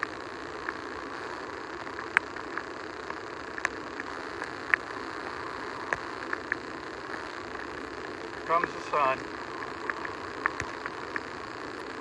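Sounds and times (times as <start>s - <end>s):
waves washing up a beach: 7.5s - 11.2s.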